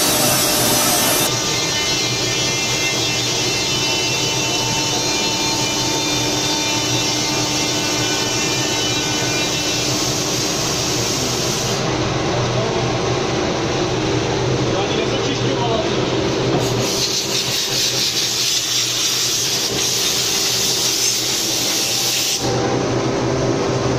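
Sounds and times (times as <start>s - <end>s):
cnc machine whirring and whining: 0.0s - 16.8s, 17.5s - 23.9s.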